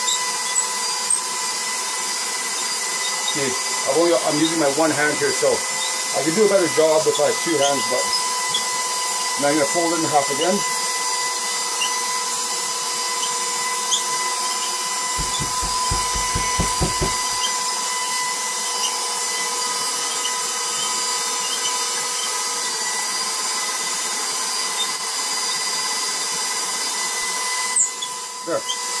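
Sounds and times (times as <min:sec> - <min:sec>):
soft low thumps: 0:15.2 - 0:17.4.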